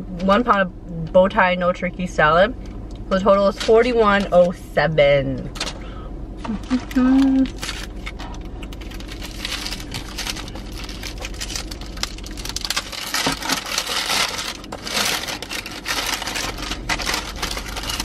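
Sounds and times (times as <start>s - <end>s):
paper wrapping crinkling: 6.6s - 18.0s.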